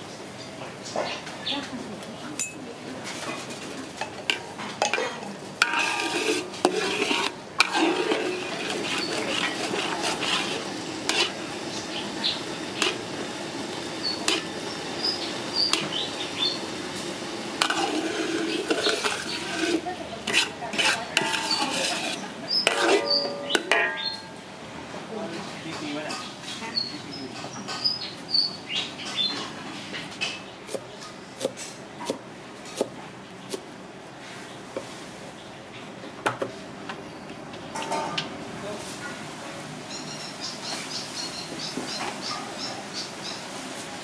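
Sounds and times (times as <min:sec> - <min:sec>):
metal ladle scraping wok: 0:03.1 - 0:13.2, 0:14.0 - 0:16.0, 0:17.6 - 0:24.3
sauce sizzling and bubbling: 0:05.8 - 0:19.9.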